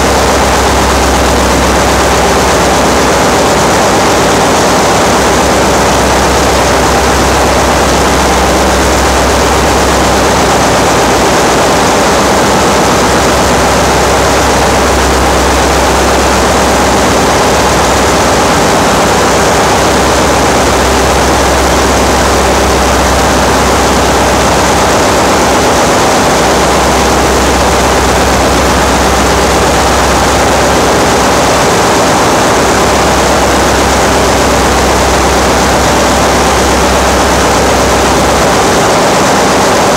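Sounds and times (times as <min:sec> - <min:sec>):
engine-room machinery running: 0:00.0 - 0:39.9.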